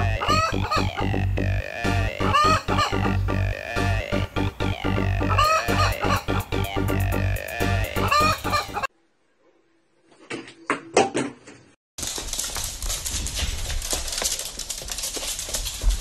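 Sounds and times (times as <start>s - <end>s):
background music: 0.0s - 8.9s
hen clucking: 0.0s - 8.9s.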